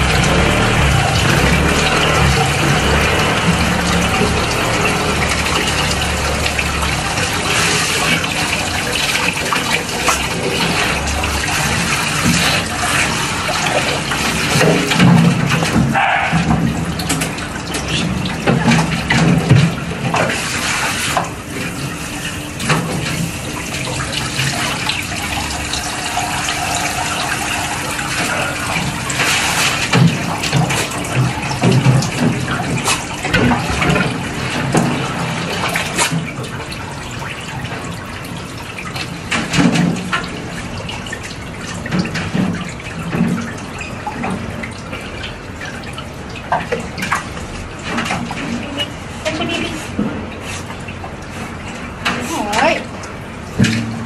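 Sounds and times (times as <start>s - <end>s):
water splashing from shower sprayer: 0.0s - 54.0s.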